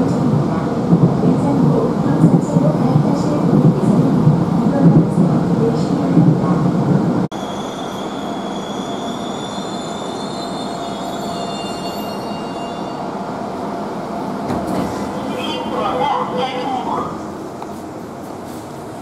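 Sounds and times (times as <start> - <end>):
train running rumble: 0.0 - 7.3
high train squealing: 7.3 - 13.2.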